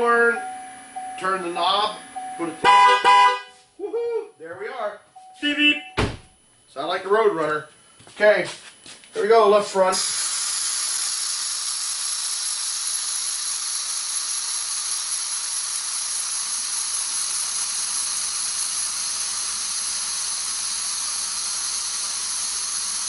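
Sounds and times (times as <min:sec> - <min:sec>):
air hissing from tire valve: 0:09.9 - 0:23.0.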